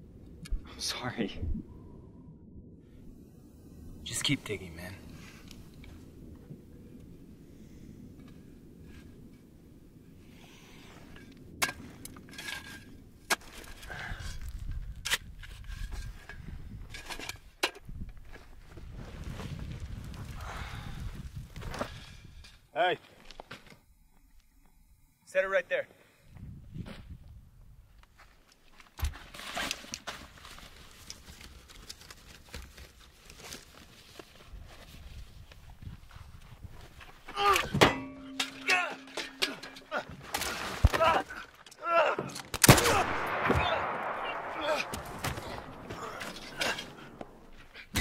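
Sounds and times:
soil crunching and scraping: 10.2 - 23.9, 28.1 - 42.7, 44.4 - 48.0.

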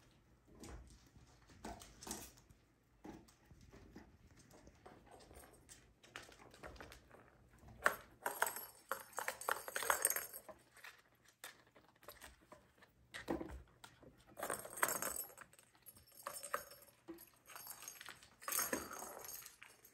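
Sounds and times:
plastic balls rattling in tracks: 6.2 - 11.0.

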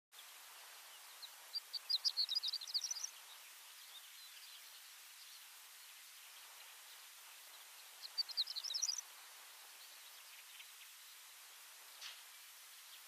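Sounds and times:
background hiss: 0.1 - 13.0
lark chirping: 1.0 - 4.8, 7.9 - 9.1.

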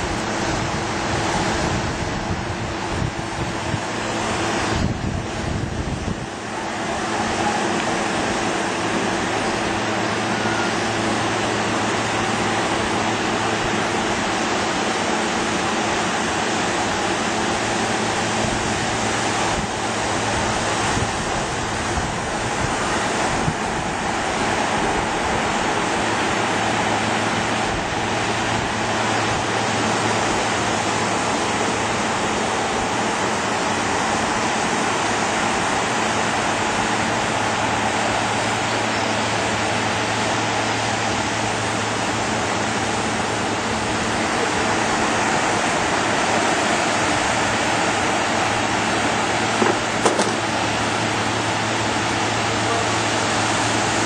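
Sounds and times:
wind noise on microphone: 0.0 - 52.4
surf: 0.0 - 54.0.

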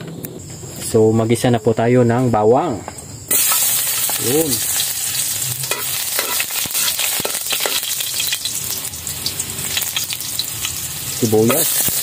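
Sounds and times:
garlic sizzling in oil: 3.3 - 12.0
spatula scraping wok: 3.3 - 12.0.

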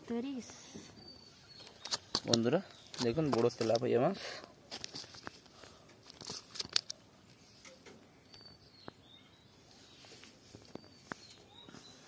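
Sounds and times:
faint bird chirps: 0.3 - 3.0, 7.7 - 12.0.

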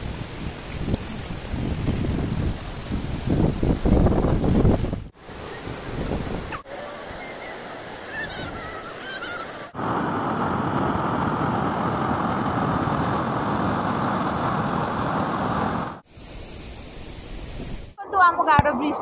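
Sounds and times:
faint hiss: 5.1 - 18.3
river rushing: 5.2 - 16.0.

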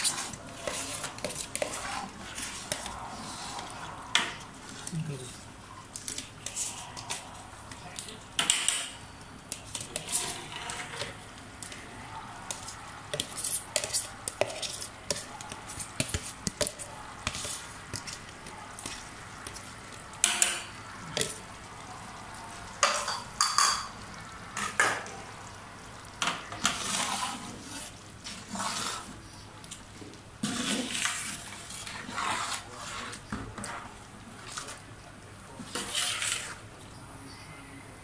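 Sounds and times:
ladle scraping a metal pot: 0.0 - 4.9, 8.4 - 11.8, 12.5 - 18.2, 26.2 - 29.2, 30.4 - 34.8, 35.6 - 36.7.

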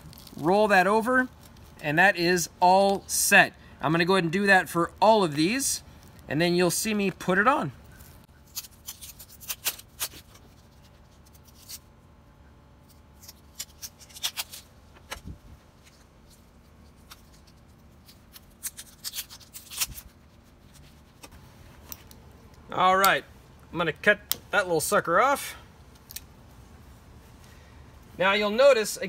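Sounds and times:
velcro patches crackling: 0.0 - 1.8, 7.8 - 11.9, 12.8 - 23.2.

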